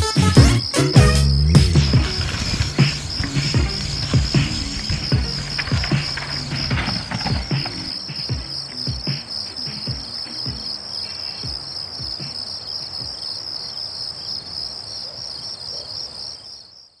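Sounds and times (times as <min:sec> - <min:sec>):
high-pitched insect chirring: 0:00.6 - 0:12.5.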